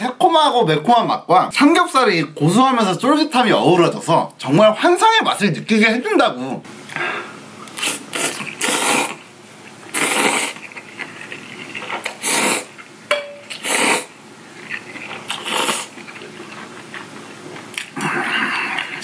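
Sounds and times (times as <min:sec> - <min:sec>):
noodles being slurped: 0:07.6 - 0:12.9, 0:13.5 - 0:19.0.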